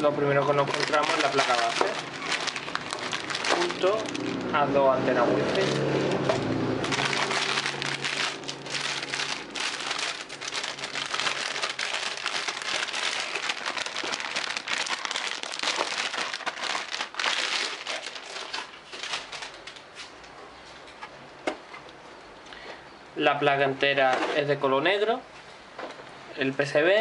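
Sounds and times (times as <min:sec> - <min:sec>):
plastic bag crinkling: 0:00.0 - 0:04.7, 0:05.4 - 0:20.0.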